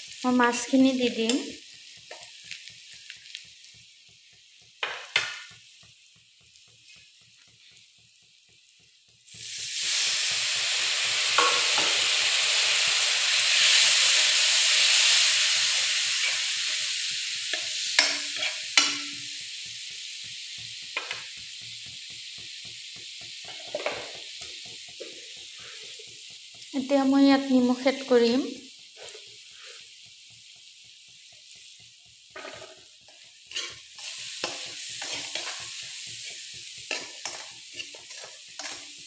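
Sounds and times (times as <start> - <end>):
masala sizzling in oil: 0.0 - 39.0
spatula knocking metal pan: 4.8 - 5.5, 11.4 - 12.0, 17.5 - 19.4, 32.3 - 33.8.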